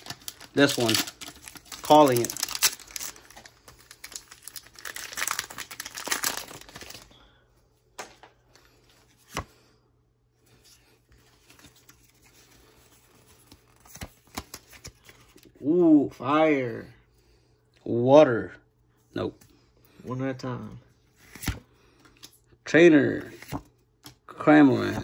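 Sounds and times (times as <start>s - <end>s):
foil wrapper crinkling and tearing: 0.0s - 7.1s
cards shuffling: 10.8s - 15.5s, 21.2s - 22.3s.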